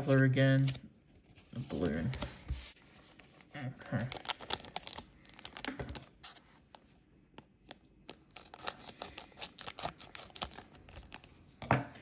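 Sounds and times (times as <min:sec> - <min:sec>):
cards clicking and rustling: 0:04.0 - 0:06.2.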